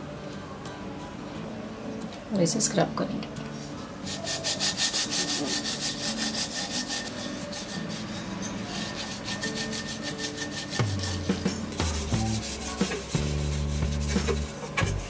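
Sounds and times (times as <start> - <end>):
low background music: 0.0 - 15.0
gritty scrubbing on copper: 3.6 - 15.0.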